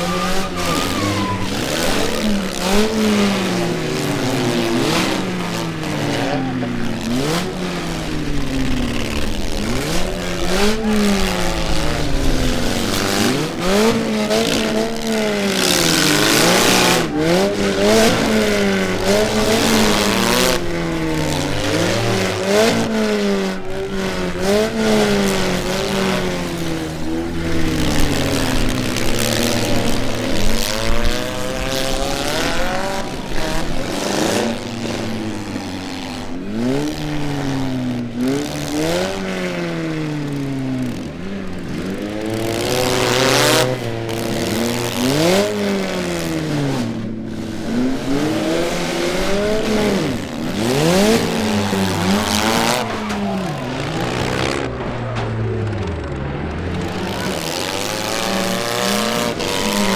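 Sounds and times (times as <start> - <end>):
car engines revving: 0.0 - 59.9
sharp bangs: 51.8 - 58.0.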